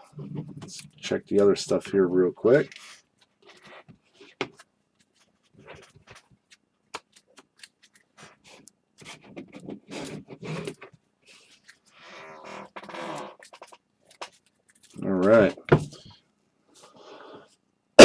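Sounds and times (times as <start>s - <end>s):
trading cards being handled: 2.6s - 12.0s, 13.2s - 15.5s.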